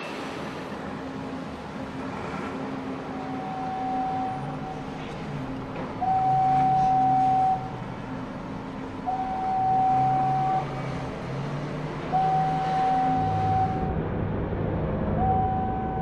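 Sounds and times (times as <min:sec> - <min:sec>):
low machinery hum: 0:00.0 - 0:16.0
crane warning alarm tone: 0:02.6 - 0:11.2, 0:12.0 - 0:13.9, 0:15.2 - 0:16.0.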